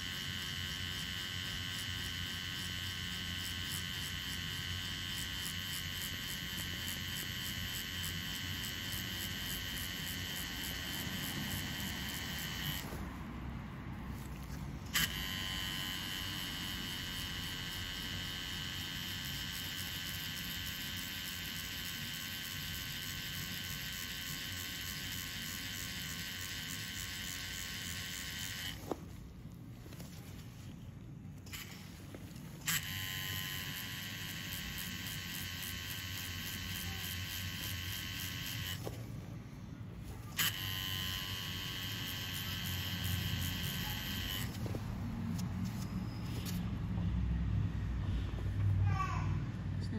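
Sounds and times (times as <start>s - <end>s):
tattoo machine buzzing: 0.0s - 30.8s, 31.4s - 46.7s
tattoo machine switch click: 0.1s - 12.9s, 14.9s - 28.8s, 40.4s - 44.6s.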